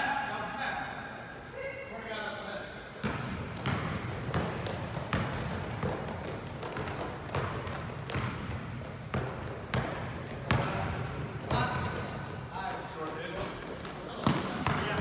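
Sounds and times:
sneakers squeaking on floor: 0:02.2 - 0:15.0
basketball bouncing on wooden floor: 0:03.0 - 0:12.3, 0:13.6 - 0:15.0.

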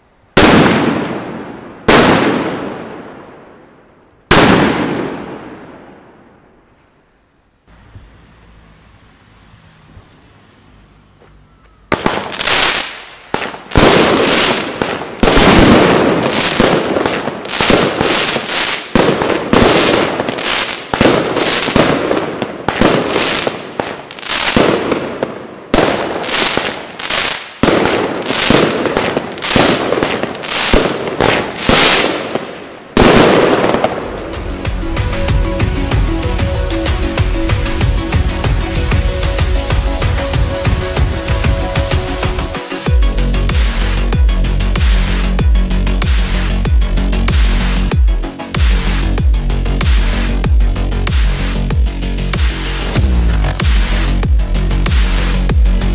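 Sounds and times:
firework bangs: 0:00.3 - 0:06.6, 0:11.9 - 0:35.5
background music: 0:31.6 - 0:55.9.

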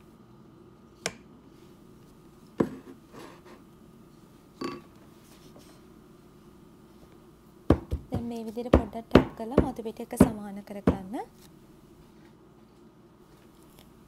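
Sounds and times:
faint steady hum: 0:00.0 - 0:14.0
spatula knocking on pan: 0:07.7 - 0:11.1.

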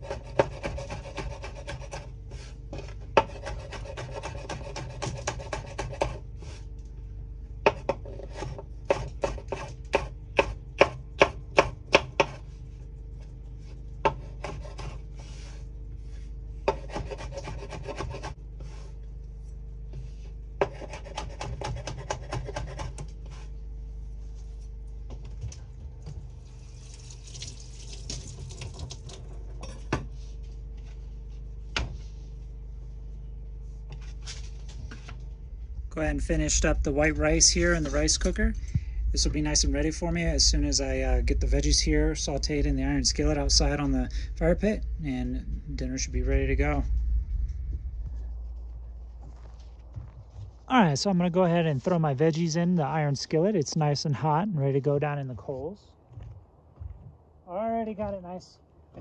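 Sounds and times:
knife chopping on wooden board: 0:00.0 - 0:02.1, 0:02.8 - 0:06.2, 0:07.6 - 0:12.4, 0:14.0 - 0:15.0, 0:16.6 - 0:18.3, 0:20.6 - 0:23.4.

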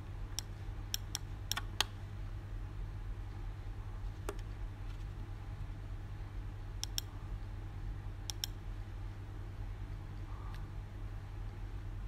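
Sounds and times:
steady low hum: 0:00.0 - 0:12.0
computer mouse button clicking: 0:06.8 - 0:07.1, 0:08.3 - 0:08.6.

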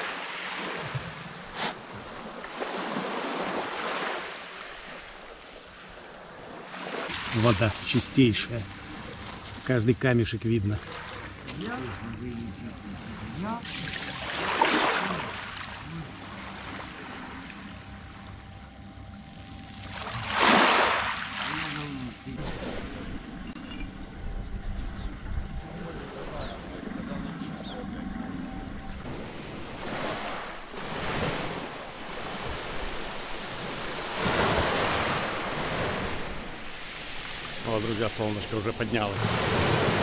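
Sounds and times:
waves washing onto pebbles: 0:29.1 - 0:40.0.

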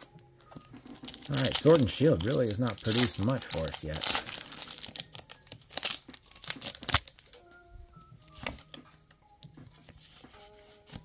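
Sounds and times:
cards rustling: 0:00.4 - 0:07.5
foil wrapper crinkling: 0:00.5 - 0:07.4.

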